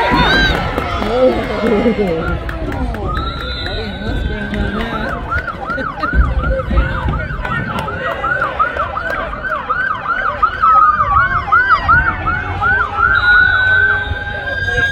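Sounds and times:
siren slow wail: 1.1s - 14.9s
siren fast yelp: 2.2s - 14.9s.

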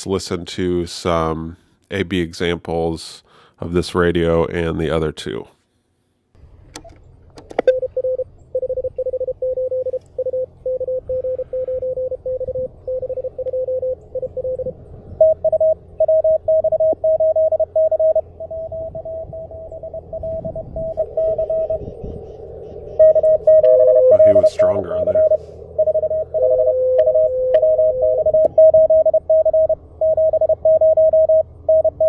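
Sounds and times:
morse code beeping tone: 7.7s - 22.1s, 23.0s - 32.0s
faint receiver band noise: 23.0s - 29.8s.

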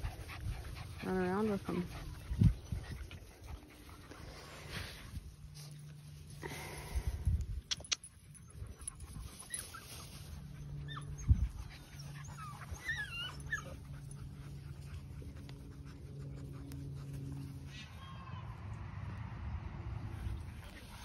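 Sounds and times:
puppies whining and squeaking: 7.7s - 18.2s.

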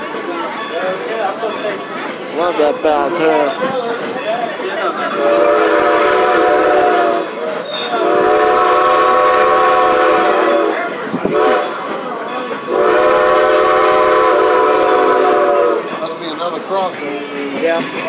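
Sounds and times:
moving train rumble: 0.0s - 18.0s
steam locomotive whistle: 5.1s - 11.9s, 12.7s - 15.9s.

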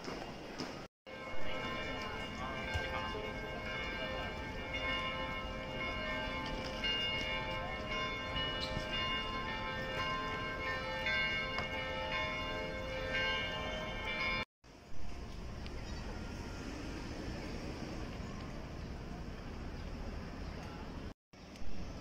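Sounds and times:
low street noise: 0.0s - 22.0s
chiming bell-like music: 1.1s - 14.5s.

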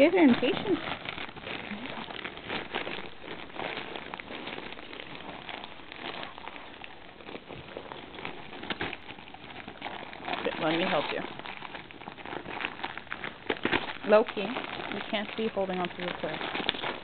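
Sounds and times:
plastic wrapping crinkling: 0.0s - 17.0s.

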